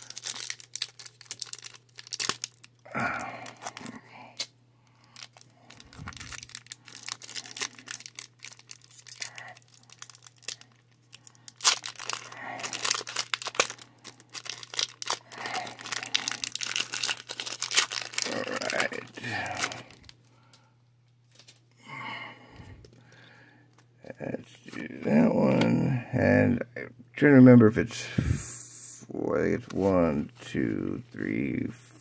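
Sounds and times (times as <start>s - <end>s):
foil wrapper crinkling and tearing: 0.0s - 20.2s.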